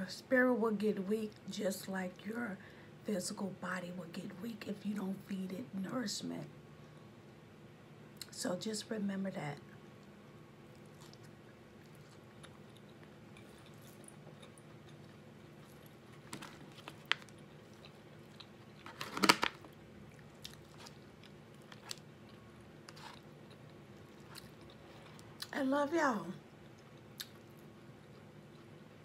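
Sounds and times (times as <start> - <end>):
person chewing: 9.9 - 19.4, 20.0 - 25.5, 26.6 - 29.0.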